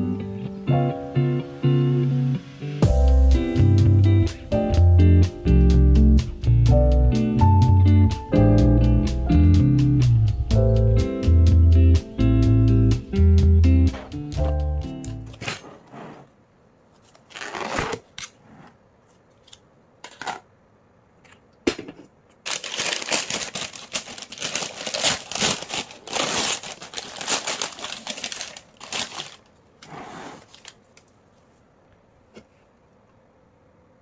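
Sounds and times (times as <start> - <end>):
rustling and crinkling: 16.9 - 20.4, 22.0 - 31.7.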